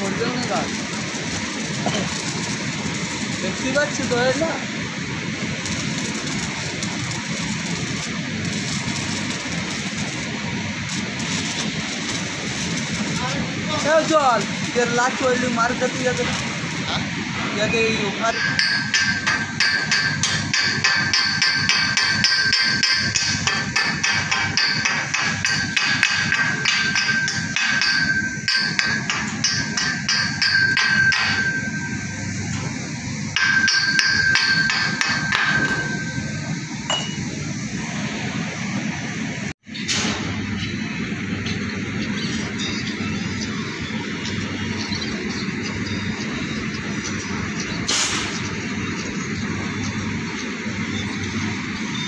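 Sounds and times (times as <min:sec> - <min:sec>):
welding arc crackling: 0:00.0 - 0:52.0
chipping hammer tapping on metal: 0:18.3 - 0:31.6, 0:33.4 - 0:36.2.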